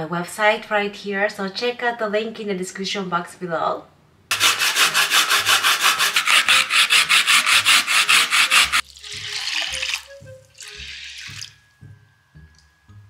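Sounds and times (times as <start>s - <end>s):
carrot grating on grater: 4.3s - 8.8s.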